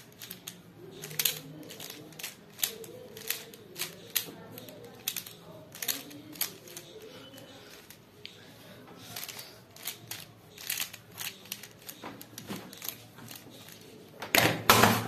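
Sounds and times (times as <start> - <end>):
puzzle cube clicking and rattling: 0.0 - 8.0, 9.1 - 14.0.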